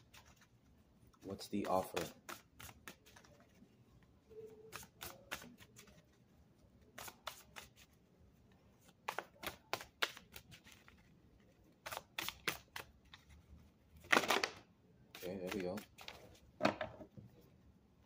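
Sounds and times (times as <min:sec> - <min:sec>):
cards being shuffled: 0:01.1 - 0:03.6, 0:08.8 - 0:11.1, 0:11.7 - 0:13.4, 0:14.0 - 0:16.4.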